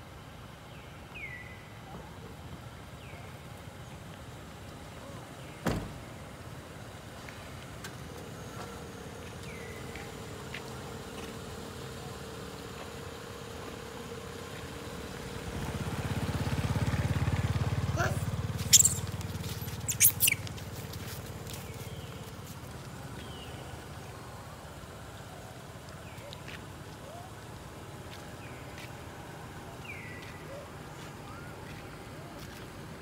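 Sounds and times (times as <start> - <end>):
baby monkey squeaks: 18.6 - 20.6.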